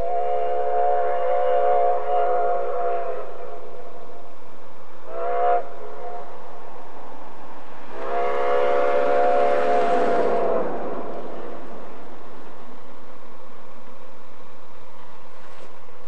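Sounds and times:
steam locomotive chime whistle: 0:00.0 - 0:04.2, 0:05.1 - 0:06.5, 0:07.9 - 0:12.3
steam hissing: 0:05.1 - 0:13.8.

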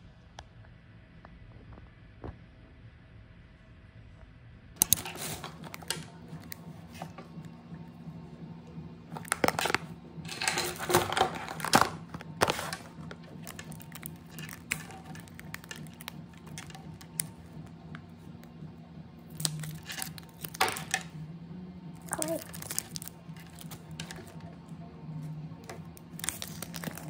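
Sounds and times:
steady low hum: 0:00.0 - 0:27.0
plastic packaging crinkling: 0:04.8 - 0:07.4, 0:09.1 - 0:18.6, 0:19.3 - 0:21.1, 0:22.0 - 0:24.5, 0:25.6 - 0:27.0.

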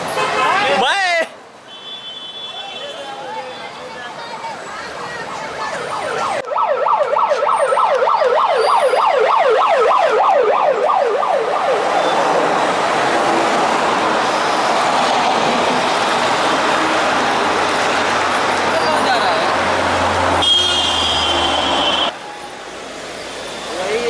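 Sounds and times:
cars passing: 0:00.0 - 0:24.0
electronic siren yelping: 0:05.8 - 0:12.3.

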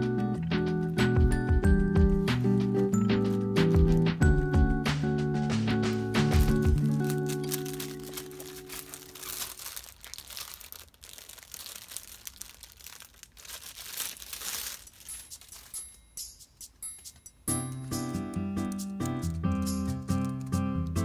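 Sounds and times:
background music: 0:00.0 - 0:09.5, 0:14.9 - 0:21.0
plastic wrapping crinkling: 0:05.8 - 0:18.0, 0:19.1 - 0:21.0.

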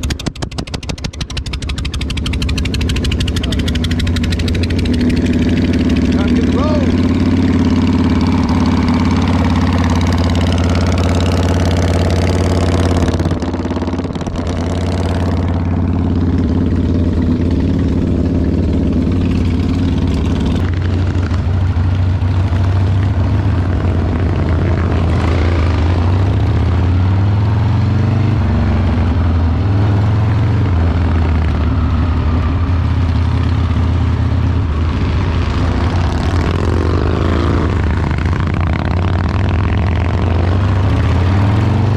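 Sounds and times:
motorcycle engine idling: 0:00.0 - 0:23.1
motorcycle engine revving while riding: 0:00.0 - 0:41.9.

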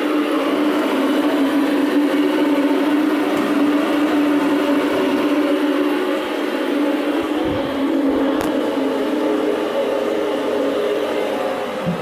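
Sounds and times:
toilet tank refilling: 0:00.5 - 0:05.9, 0:11.8 - 0:12.0.

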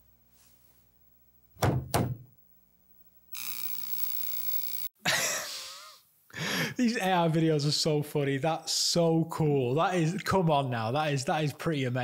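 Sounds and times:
steady hiss with low hum: 0:00.0 - 0:03.3.

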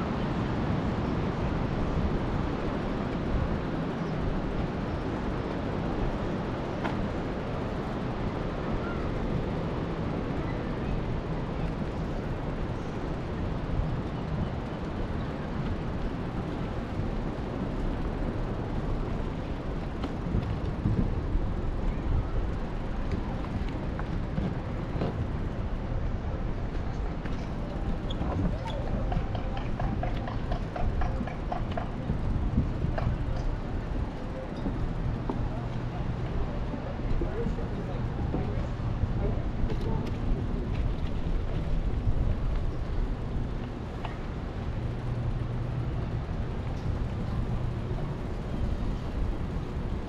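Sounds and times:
wind buffeting microphone: 0:00.0 - 0:50.0
bike tyres rolling on wooden planks: 0:13.2 - 0:25.9, 0:26.6 - 0:38.6.

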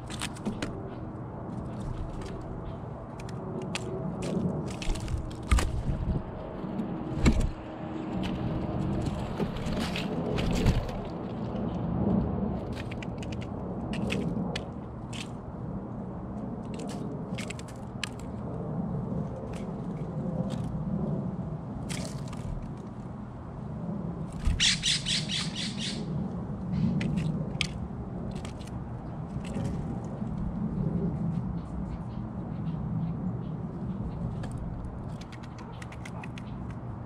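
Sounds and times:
rattling harsh bird calls: 0:24.4 - 0:26.1
bird bill tapping on seeds: 0:34.2 - 0:36.9.

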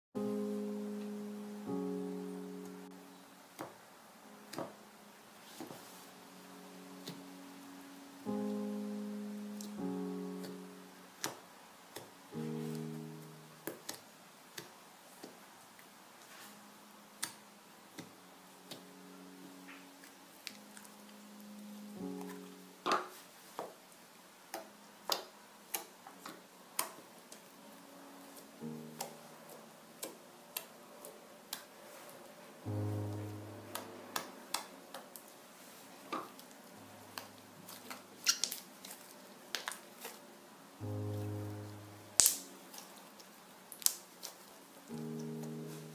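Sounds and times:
soft piano music: 0:00.2 - 0:45.9
slime clicking pops: 0:42.2 - 0:42.8.

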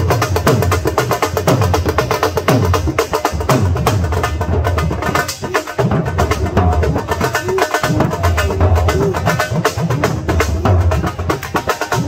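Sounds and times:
barrel drum played with sticks: 0:00.0 - 0:12.0.

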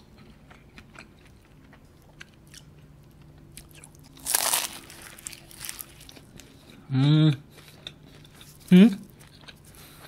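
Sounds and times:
crunch of biting pastry: 0:03.5 - 0:06.6.

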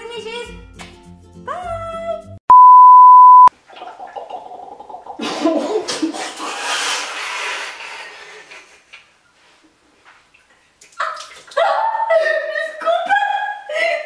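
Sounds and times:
speech: 0:00.0 - 0:00.5, 0:11.6 - 0:14.0
censor beep: 0:02.5 - 0:03.5.

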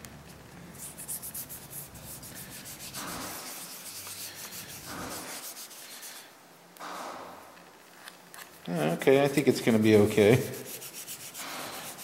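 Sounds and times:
hands rubbing paper on plastic: 0:00.8 - 0:06.3, 0:09.0 - 0:12.0.

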